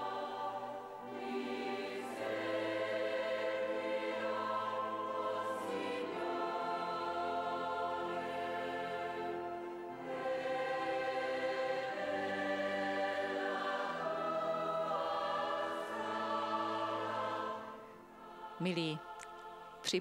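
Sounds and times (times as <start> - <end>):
choir singing a slow hymn: 0.0 - 20.0.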